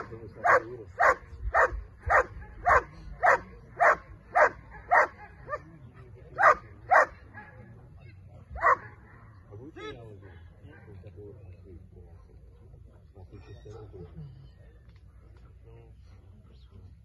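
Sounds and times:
dog barking: 0.0s - 5.7s, 6.4s - 7.7s, 8.6s - 9.4s.

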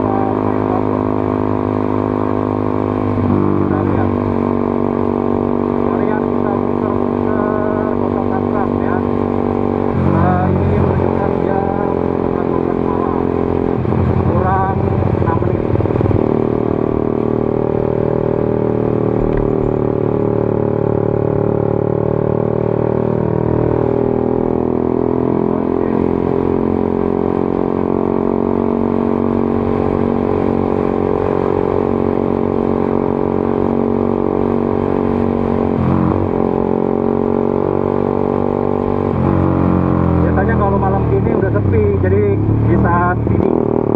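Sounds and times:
motorcycle engine riding: 0.0s - 43.9s.

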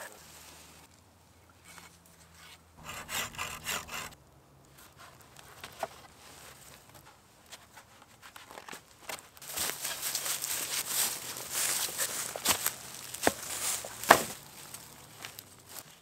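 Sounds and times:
rustling in dry grass and leaves: 0.0s - 0.9s, 2.8s - 16.0s
hand saw rasping through branch: 2.8s - 4.2s.

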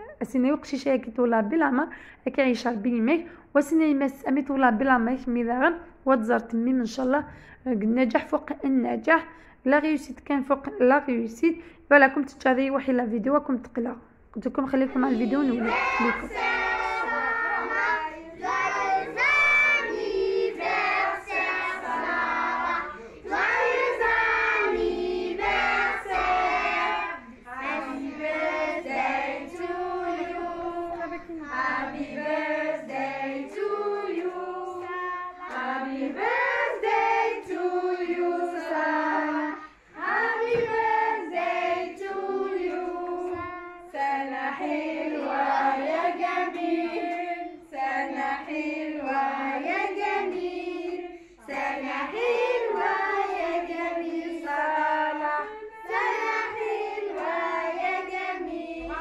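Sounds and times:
children and women singing: 14.7s - 59.0s.

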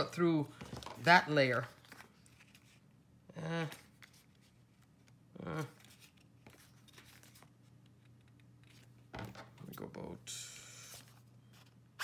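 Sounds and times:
paper rustling: 0.5s - 2.9s, 3.7s - 9.4s.

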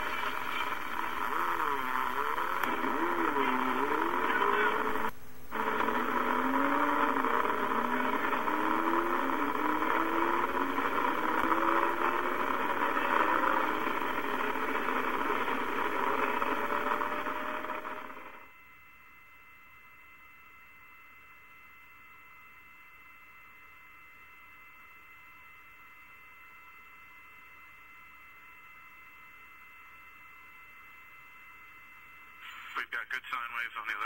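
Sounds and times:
radio static hiss: 0.0s - 18.5s, 32.4s - 34.0s.

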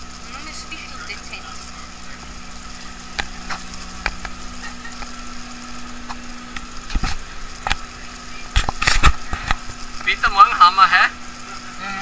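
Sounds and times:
machinery hiss and hum: 0.0s - 12.0s.

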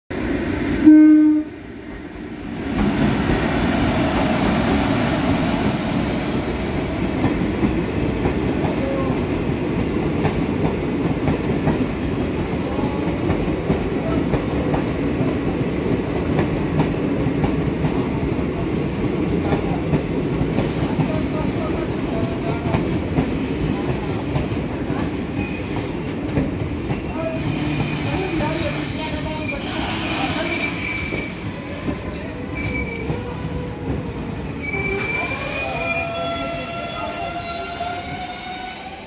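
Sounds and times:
train horn blast: 0.8s - 1.6s
train coaches rumbling: 1.6s - 39.0s.

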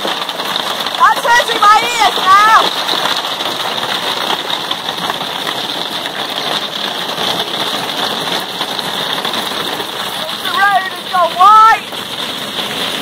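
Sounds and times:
hail clattering on roof: 0.0s - 13.0s.

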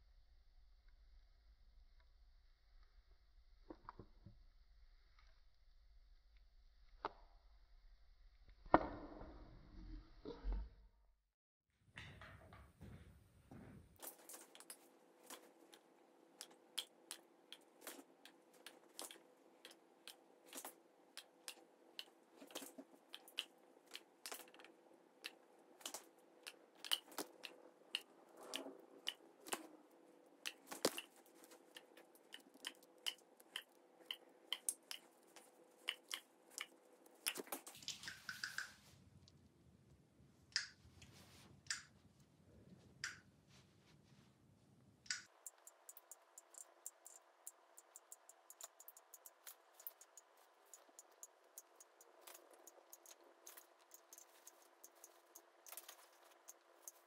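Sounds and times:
low room hum: 11.8s - 57.0s
faint clicks and taps: 12.0s - 39.4s, 45.0s - 57.0s.

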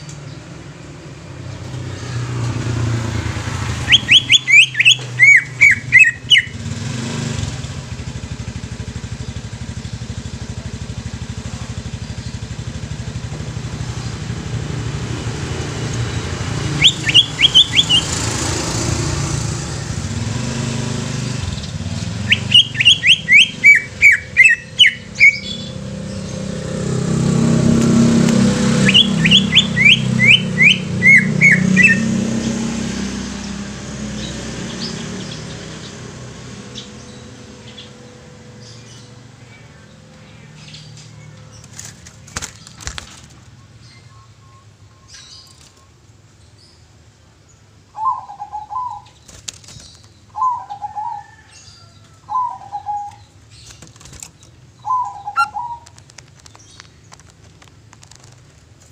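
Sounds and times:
motorbike passing: 0.0s - 44.4s, 48.1s - 58.9s
low traffic hum: 0.0s - 58.9s
bird singing sharp notes: 3.7s - 6.8s, 15.9s - 18.8s, 19.6s - 41.7s, 48.0s - 53.8s, 54.8s - 56.0s.

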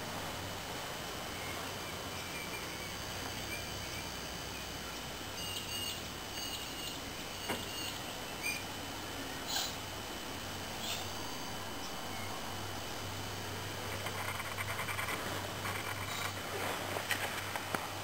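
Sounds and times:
low hum: 1.2s - 17.0s
high bird chirps: 5.4s - 8.7s, 10.8s - 12.4s.

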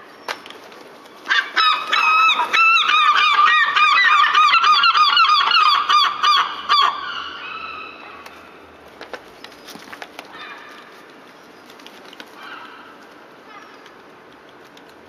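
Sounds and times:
herring gull calling: 1.3s - 8.2s.

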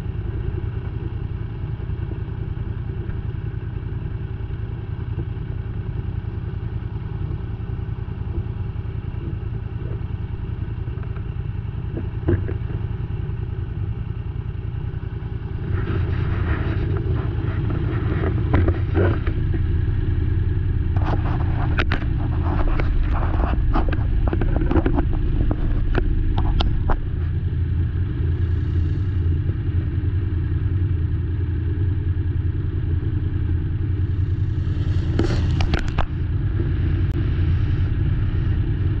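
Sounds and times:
atv engine droning: 0.0s - 39.0s
sharp clicks and rattles: 10.6s - 14.1s, 14.9s - 27.7s, 34.9s - 37.1s.

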